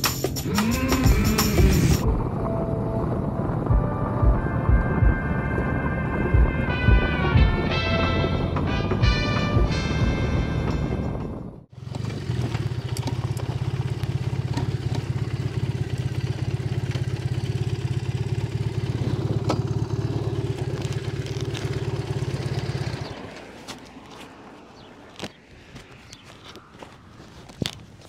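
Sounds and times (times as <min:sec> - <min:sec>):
motorcycle engine idling: 0:00.0 - 0:05.3, 0:11.4 - 0:24.2.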